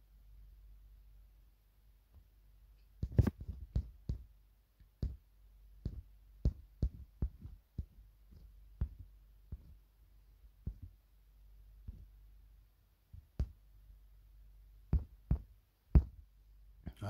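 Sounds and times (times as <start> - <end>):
fingers tapping on phone: 3.0 - 9.8, 14.9 - 16.2.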